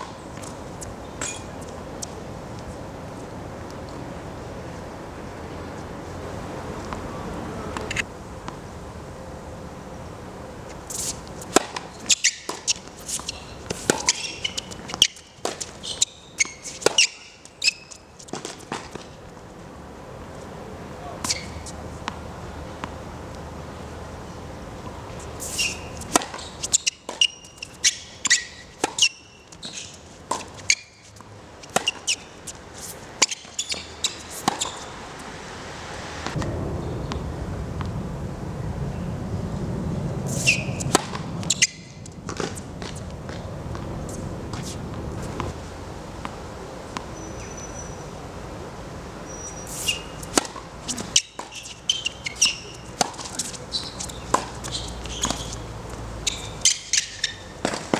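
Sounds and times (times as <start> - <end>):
sneakers squeaking: 0.0 - 2.2, 10.9 - 19.2, 21.2 - 22.2, 25.2 - 35.2, 40.3 - 45.6, 47.0 - 48.0, 49.2 - 57.9
racket striking tennis ball: 10.9 - 19.1, 25.3 - 35.4, 40.3 - 45.6, 49.5 - 57.9.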